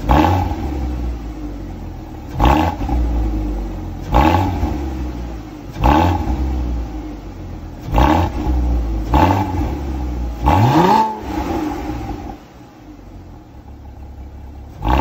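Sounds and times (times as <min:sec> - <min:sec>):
car engine revving from idle: 0:00.0 - 0:15.0.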